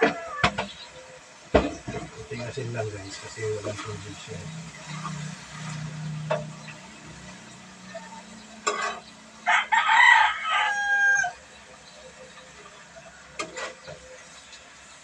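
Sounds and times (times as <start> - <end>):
rooster crowing: 0.0 - 0.6, 9.4 - 11.5.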